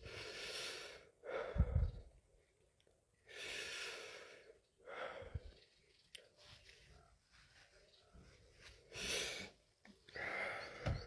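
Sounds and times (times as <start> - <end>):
man breathing heavily: 0.0 - 2.2, 3.2 - 5.8, 8.7 - 11.0.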